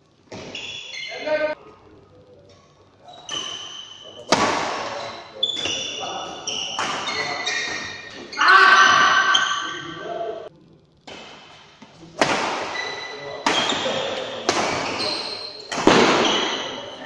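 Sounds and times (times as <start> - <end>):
shoes squeaking on floor: 0.3 - 1.6, 3.0 - 10.0, 12.7 - 17.0
rackets hitting shuttlecock: 3.3 - 8.3, 11.0 - 16.9.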